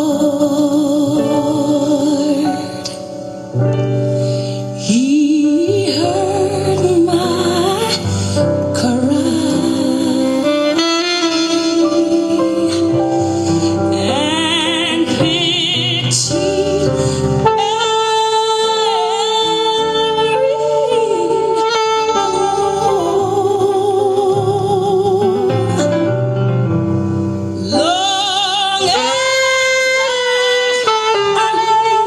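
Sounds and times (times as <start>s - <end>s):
backing track with singing: 4.8s - 21.8s
saxophone playing slow melody: 5.9s - 24.2s, 28.8s - 32.0s.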